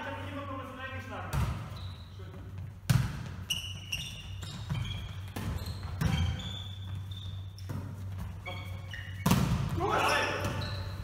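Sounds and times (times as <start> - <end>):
shoes squeaking on floor: 1.4 - 11.0
hands hitting volleyball: 2.8 - 3.4, 9.2 - 10.6.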